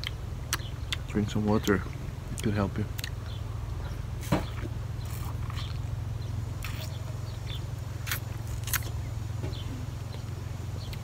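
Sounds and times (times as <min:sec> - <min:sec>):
wet mouth smacking clicks: 0:00.0 - 0:03.2
steady low hum: 0:00.0 - 0:11.0.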